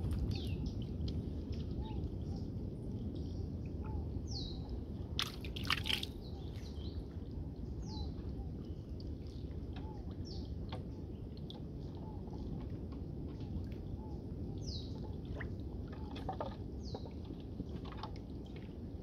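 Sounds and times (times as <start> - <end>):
steady low rumble: 0.0 - 19.0
clicks and water sloshing: 5.2 - 6.2, 9.0 - 14.0, 15.0 - 19.0.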